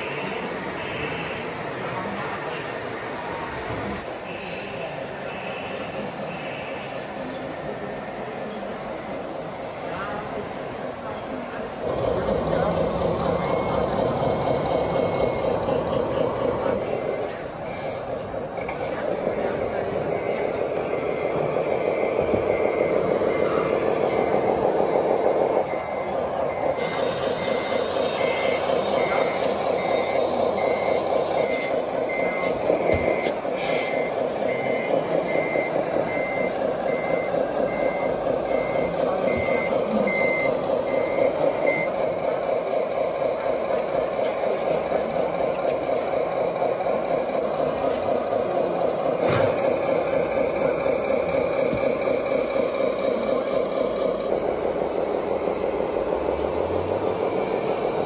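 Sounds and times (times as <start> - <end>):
simulated diesel engine running: 0.0 - 58.0
reversing beeper: 11.8 - 45.5, 48.5 - 58.0.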